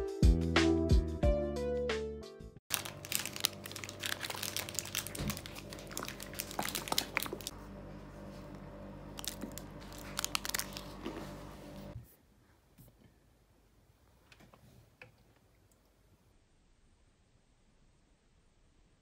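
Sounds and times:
foil wrapper crinkling and tearing: 2.7 - 7.5, 9.1 - 11.3.

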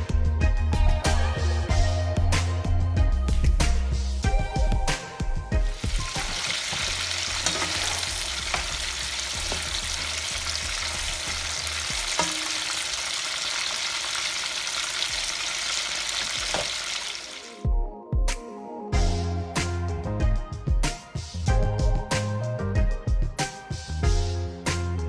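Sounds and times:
meat sizzling in oil: 5.6 - 17.6
spoon stirring in pan: 5.9 - 13.2.

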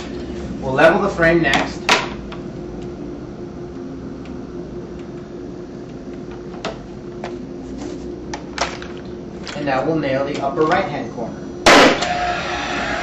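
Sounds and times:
steady background hum: 0.0 - 13.0.

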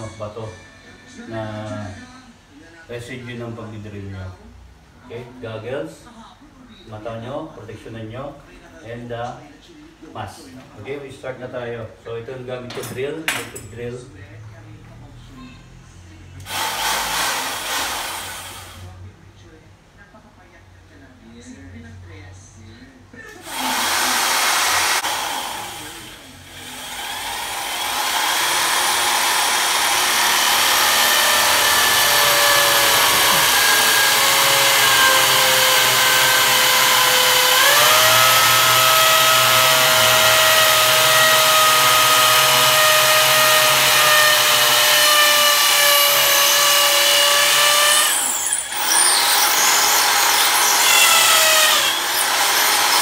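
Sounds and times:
electric drill boring into concrete: 16.5 - 18.8, 23.4 - 53.0.

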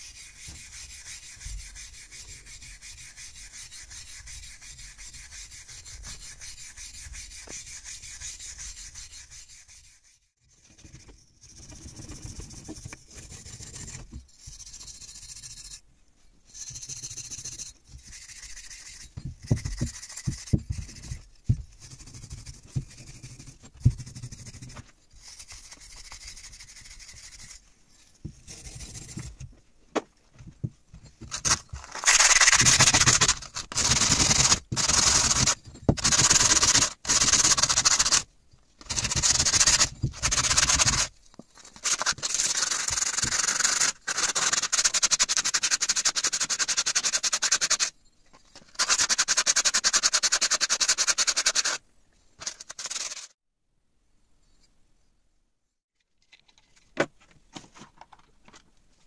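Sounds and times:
sandpaper rasping on steel: 0.0 - 10.3, 16.5 - 27.6, 31.3 - 41.1, 41.7 - 47.9, 48.7 - 51.8, 52.4 - 53.4
wire brush scrubbing metal: 31.3 - 38.2, 38.8 - 41.1, 41.7 - 47.9, 52.4 - 53.3.

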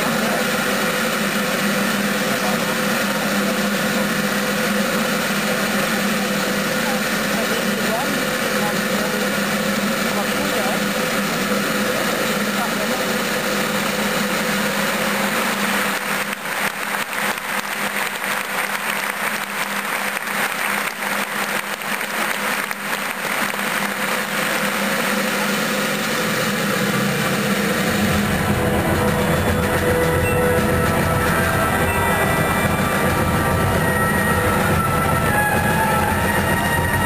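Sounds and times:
crowd noise: 0.0 - 37.0
heavy low rumble: 25.6 - 37.0
music: 26.7 - 37.0
wheels rumbling: 27.0 - 37.0.

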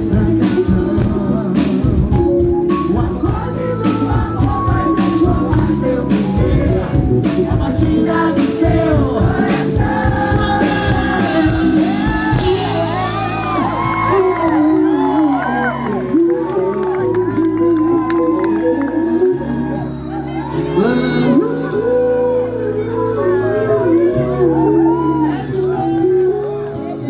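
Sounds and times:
drum beats: 0.0 - 15.0
live band music: 0.0 - 27.0
man singing: 0.0 - 27.0
crowd shouting and whooping: 9.4 - 27.0.

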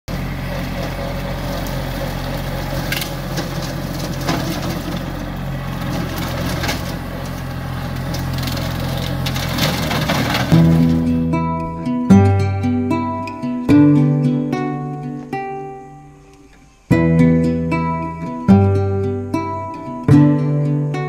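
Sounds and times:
tractor diesel engine running: 0.1 - 15.3, 16.9 - 20.5
sticks and branches snapping: 0.2 - 11.8.

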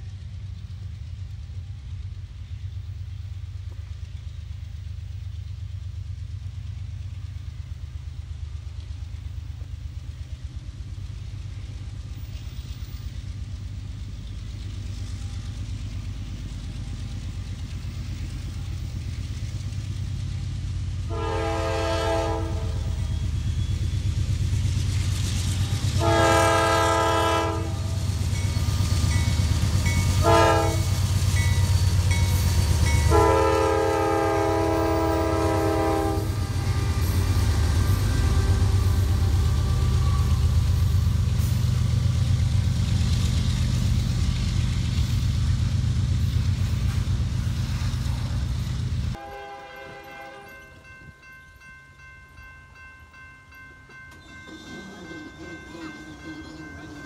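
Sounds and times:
diesel locomotive engine rumble: 0.0 - 57.0
train chime horn blasts: 21.1 - 23.2, 26.0 - 40.4, 49.2 - 52.1, 52.8 - 57.0.

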